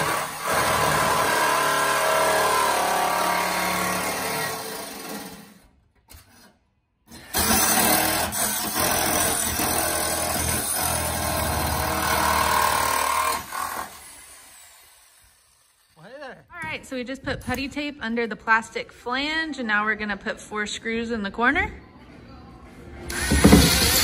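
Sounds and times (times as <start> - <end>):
jigsaw cutting sheet metal: 0.0 - 16.1, 23.1 - 24.0.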